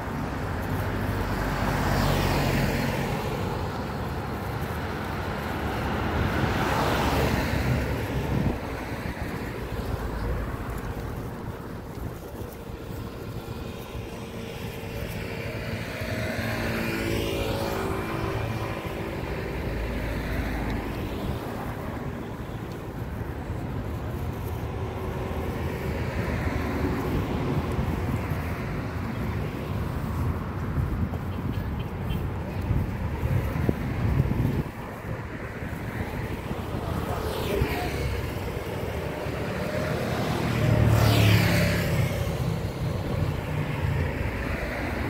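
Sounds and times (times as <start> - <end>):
car passing by: 0.7 - 4.0, 4.6 - 11.3, 13.8 - 22.8, 32.7 - 45.0
wind on microphone: 3.1 - 45.0.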